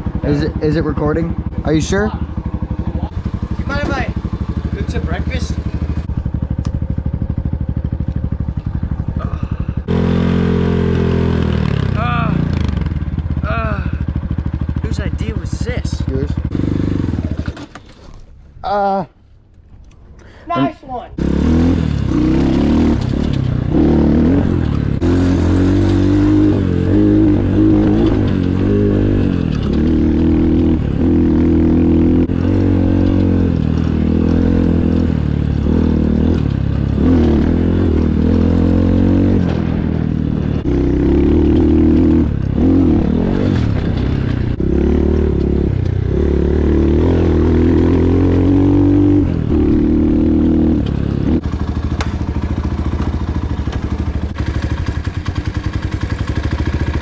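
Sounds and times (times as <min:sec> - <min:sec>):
dirt bike engine revving: 0:00.0 - 0:17.8, 0:21.1 - 0:57.0.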